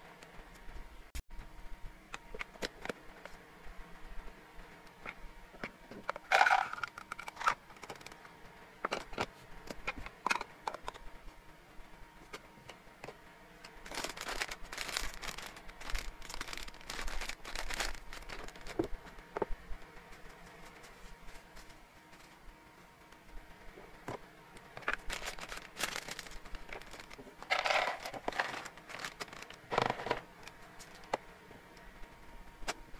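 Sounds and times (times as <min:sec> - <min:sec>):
plastic snack bag crinkling: 0:13.8 - 0:18.9, 0:24.8 - 0:30.1
plastic tubs clacking: 0:27.4 - 0:28.7.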